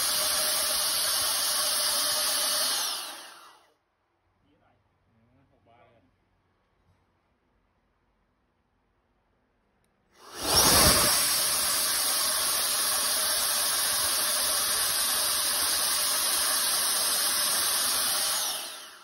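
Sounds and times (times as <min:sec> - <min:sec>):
electric compressor whining and hissing: 0:10.2 - 0:19.0.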